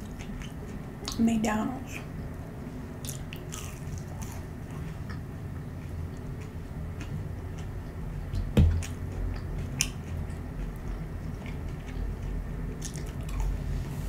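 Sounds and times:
biting and chewing: 3.0 - 13.6.

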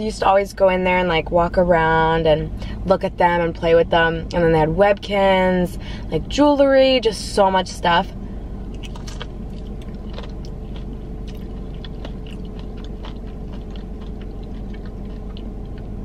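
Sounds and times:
low hum: 0.0 - 16.0
person chewing crunchy food: 8.7 - 16.0.

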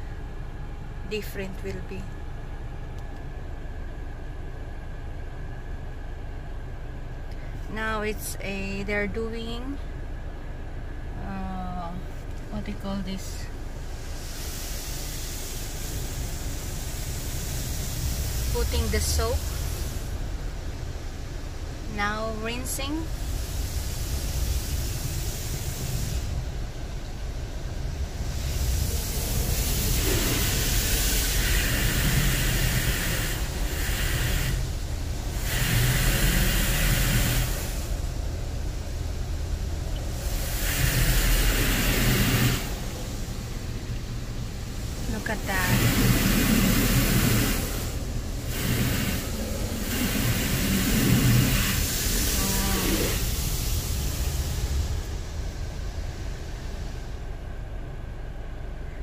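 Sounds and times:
low rumble: 0.0 - 59.0
water spray hissing on car: 12.1 - 57.3.

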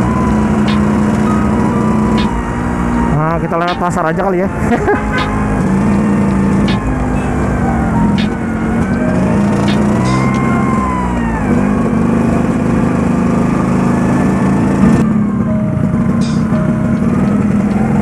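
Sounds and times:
scooter engine running: 8.2 - 18.0.

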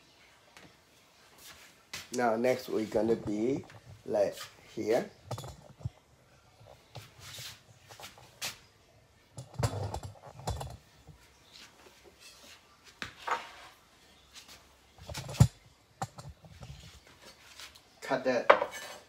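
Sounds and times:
objects knocking and clicking: 5.2 - 6.0, 9.4 - 11.2, 15.0 - 16.8.

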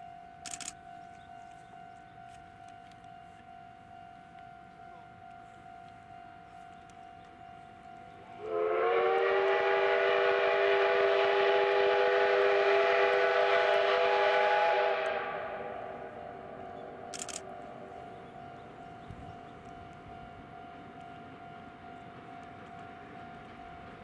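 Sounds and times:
steam locomotive whistle blast: 8.4 - 17.1.

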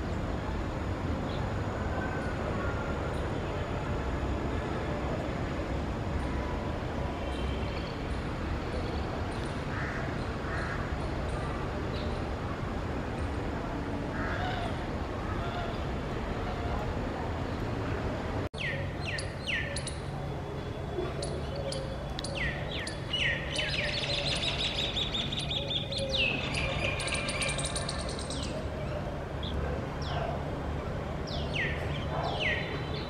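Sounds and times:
steady low hum: 0.0 - 33.0
birds chirping and trilling: 18.6 - 20.1, 21.0 - 30.4, 31.3 - 33.0.

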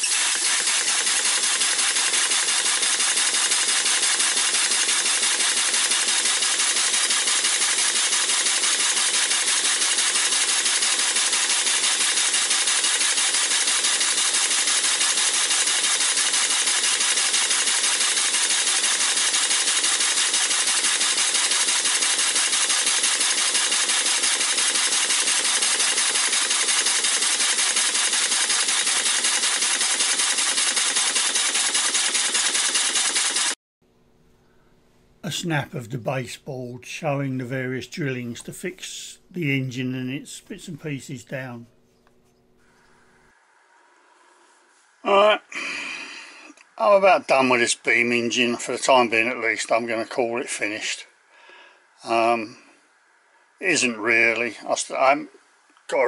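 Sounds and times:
steam engine model running on air: 0.0 - 33.6.

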